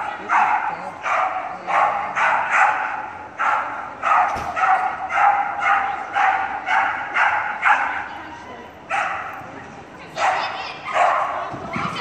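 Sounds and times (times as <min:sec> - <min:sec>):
dog barking with echo: 0:00.2 - 0:08.1.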